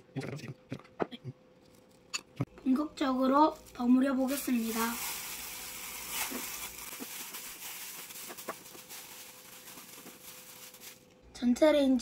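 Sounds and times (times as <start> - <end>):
plastic gloves rustling: 3.3 - 11.2.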